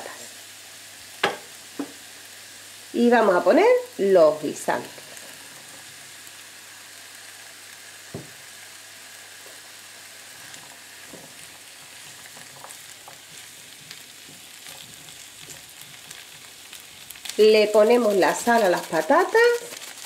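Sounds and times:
vegetables sizzling in oil: 0.0s - 20.0s
spatula scraping food: 10.6s - 20.0s.

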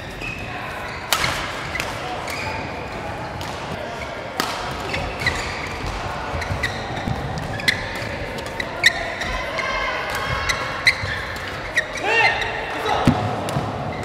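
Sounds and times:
court shoes squeaking: 0.0s - 14.0s
rackets hitting shuttlecock: 1.0s - 9.0s.

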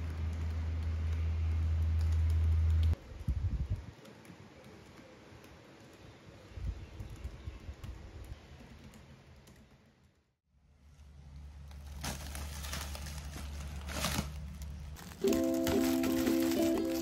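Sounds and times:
laptop keyboard typing: 0.0s - 3.0s.

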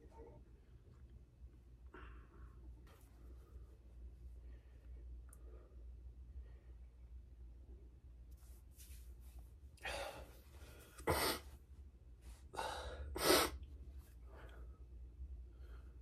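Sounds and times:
low steady hum: 0.0s - 16.0s
man breathing hard: 9.8s - 11.5s, 12.4s - 13.6s.

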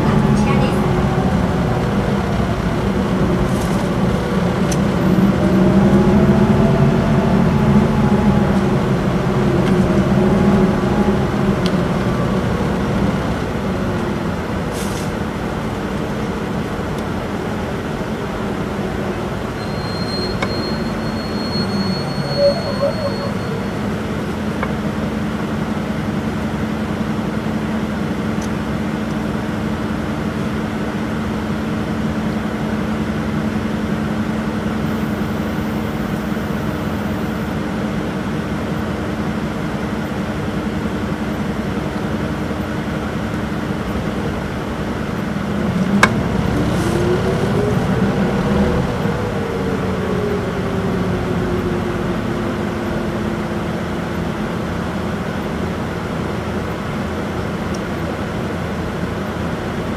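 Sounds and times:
bus diesel engine: 0.0s - 59.9s
faint high squeal: 19.6s - 23.8s.

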